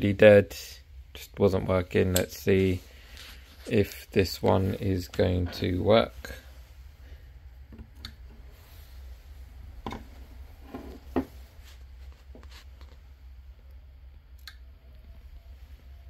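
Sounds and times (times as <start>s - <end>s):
low steady hum: 0.0s - 16.0s.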